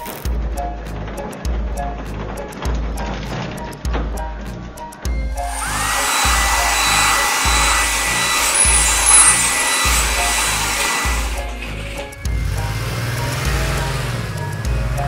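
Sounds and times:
music with bouncing bass beat: 0:00.0 - 0:09.3, 0:09.9 - 0:15.0
whirring hiss with high whine: 0:05.3 - 0:12.6.

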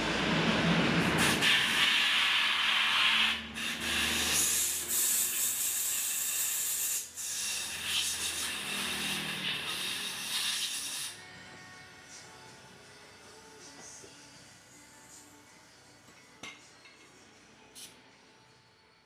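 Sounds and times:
compressed air hissing into tyre: 0:01.2 - 0:11.2.

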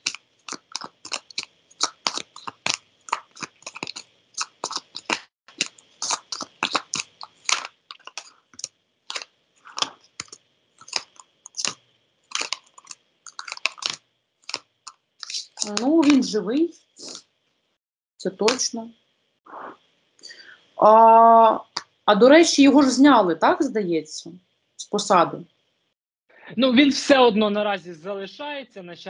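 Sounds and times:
cards being shuffled: 0:12.4 - 0:16.3.

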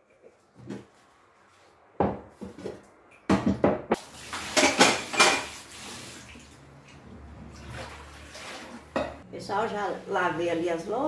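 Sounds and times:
tap water running: 0:04.0 - 0:09.2
dishes and cutlery clattering: 0:04.4 - 0:05.6, 0:08.9 - 0:09.2.

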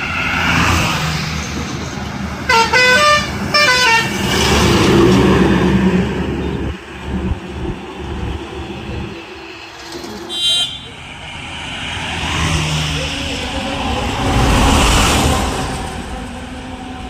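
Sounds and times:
truck passing by: 0:00.0 - 0:17.0
musical truck horn tune: 0:02.5 - 0:04.2.

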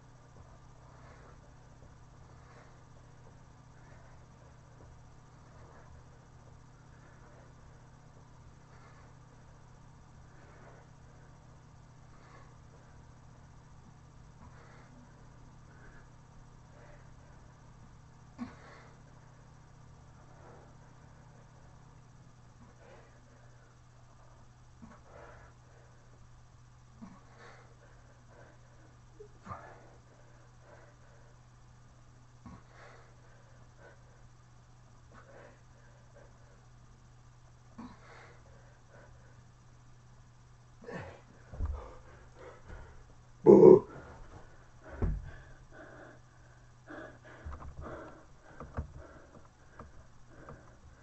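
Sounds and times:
steady low hum: 0:00.0 - 0:51.0
man breathing hard: 0:00.3 - 0:13.5, 0:14.4 - 0:17.7, 0:40.8 - 0:51.0
soft bumps: 0:41.4 - 0:43.2, 0:43.9 - 0:46.0, 0:47.1 - 0:51.0
thump: 0:44.9 - 0:45.4.

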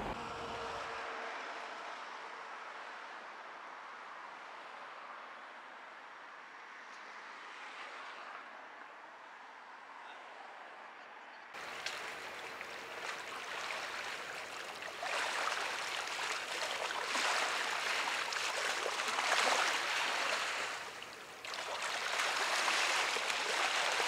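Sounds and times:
rushing water hiss: 0:11.6 - 0:24.0.

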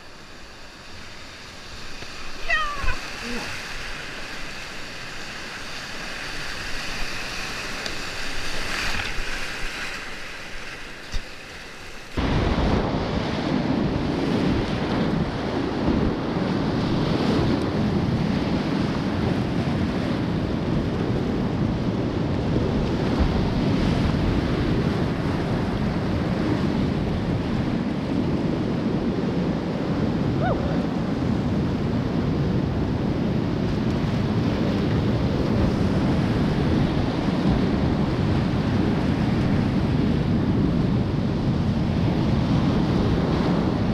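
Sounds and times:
whitewater rapids rushing: 0:00.0 - 0:10.0.

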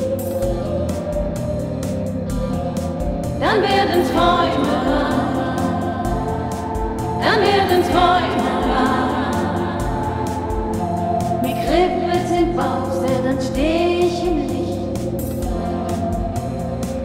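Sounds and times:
choir-like wordless singing: 0:00.0 - 0:17.0
pop song with electronic beat: 0:00.0 - 0:17.0.

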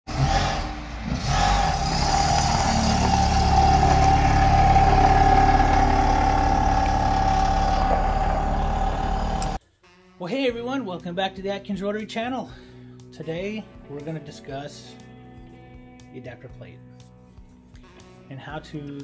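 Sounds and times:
car engine running and driving off: 0:00.1 - 0:09.6.

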